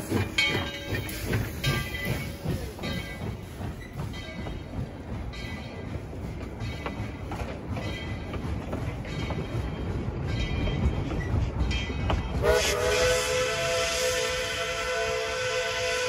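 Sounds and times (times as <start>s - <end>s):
wheels clicking on rails: 0.0s - 15.9s
steam train rumbling: 0.0s - 16.0s
steam whistle blast: 12.4s - 16.0s.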